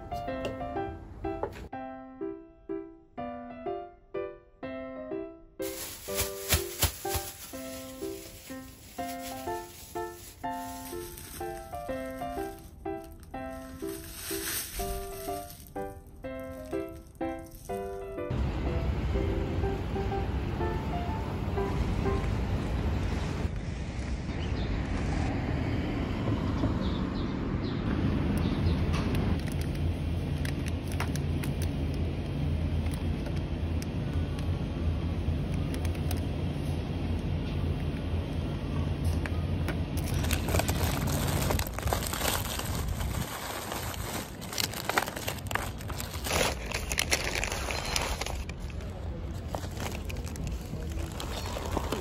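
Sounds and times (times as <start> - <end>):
tote bag rustling: 5.6 - 18.0, 40.0 - 48.5, 49.4 - 52.0.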